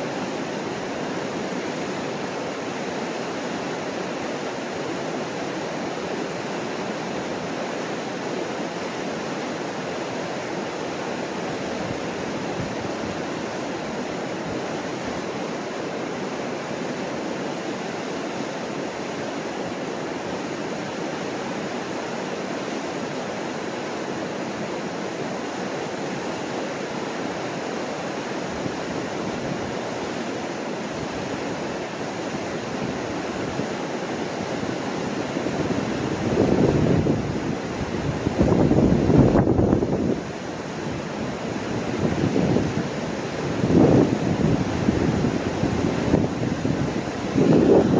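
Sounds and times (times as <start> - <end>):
whitewater roaring over rocks: 0.0 - 47.9.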